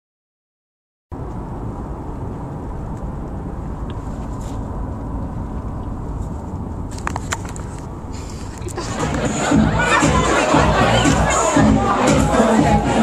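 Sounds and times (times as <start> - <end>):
road and engine rumble in car: 1.1 - 11.2.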